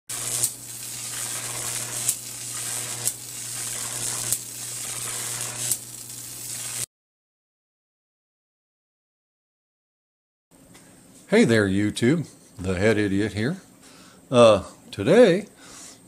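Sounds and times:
electric arc crackling and buzzing: 0.0 - 6.9
sharp arc snaps: 0.1 - 6.9.

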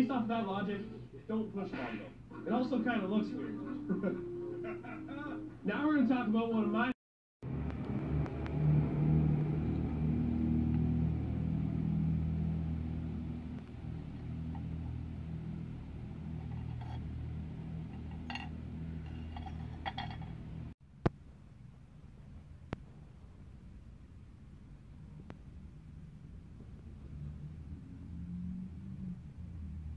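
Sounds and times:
low machine hum: 7.5 - 20.7.

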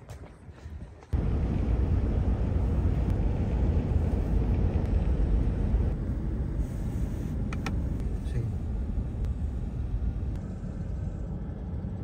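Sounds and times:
car driving on highway: 1.1 - 12.0.

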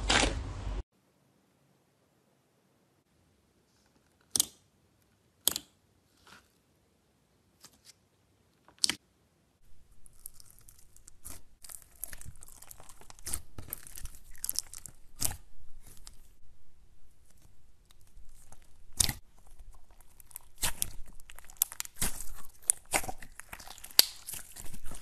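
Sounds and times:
slime crackling and crunching: 9.7 - 16.4, 17.0 - 25.0
slime popping: 10.0 - 16.2, 18.0 - 25.0.

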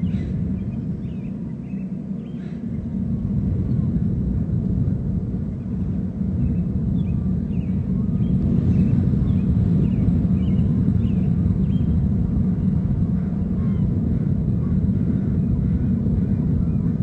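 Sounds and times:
faint bird chirps: 0.0 - 2.9, 6.4 - 12.0
distant boat engines rumbling: 0.0 - 17.0.

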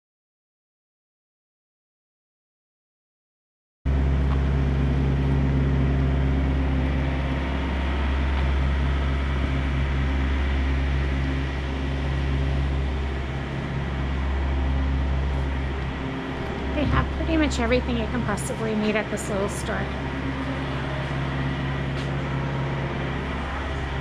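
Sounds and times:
low mechanical hum: 3.9 - 24.0.

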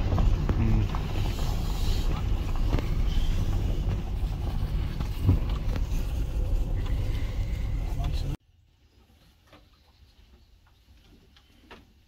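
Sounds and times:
vehicle rumbling on gravel: 0.0 - 8.4.

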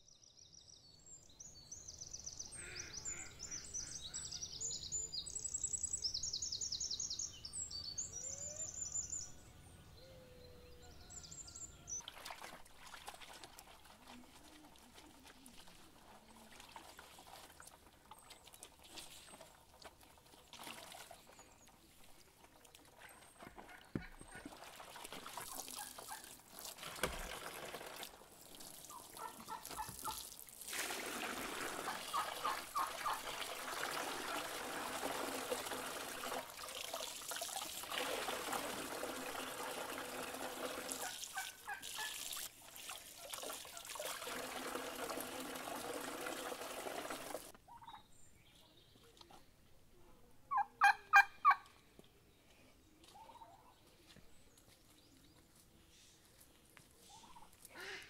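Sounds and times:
water splashing into metal basin: 12.0 - 21.4, 24.2 - 47.5
turkey gobbling: 31.8 - 33.3, 41.0 - 42.2, 50.5 - 51.6.

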